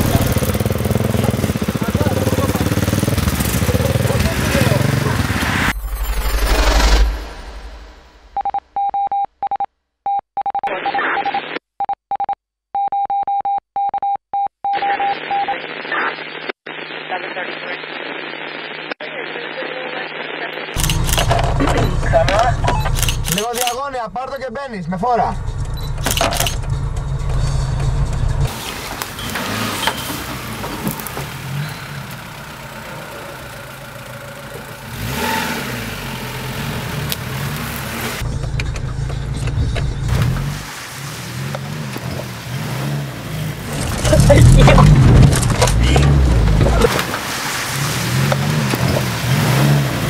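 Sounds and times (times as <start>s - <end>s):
in-cab engine rumble: 0.0s - 5.7s, 20.8s - 47.3s
off-road vehicle engine: 0.0s - 8.4s, 20.8s - 50.0s
morse code beeping: 8.3s - 15.5s, 20.8s - 23.5s
radio static hiss: 14.8s - 22.8s.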